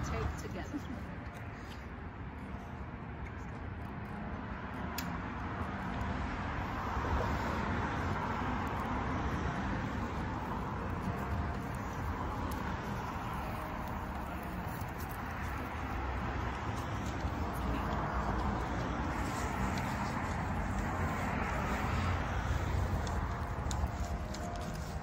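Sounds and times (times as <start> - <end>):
passing cars hiss: 5.8 - 25.0.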